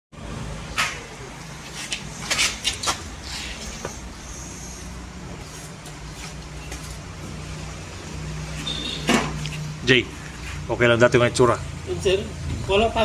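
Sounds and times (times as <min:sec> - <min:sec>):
diesel generator humming: 0:00.2 - 0:13.0.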